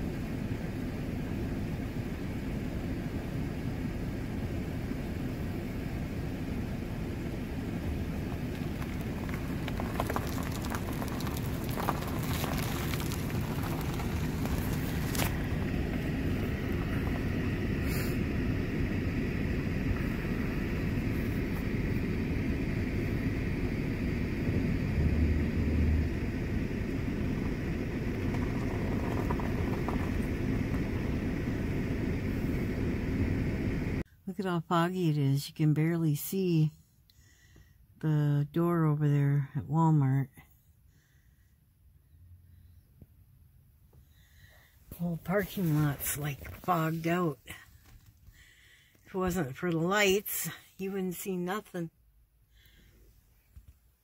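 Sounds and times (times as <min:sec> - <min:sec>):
car engine idling: 0:00.0 - 0:34.0.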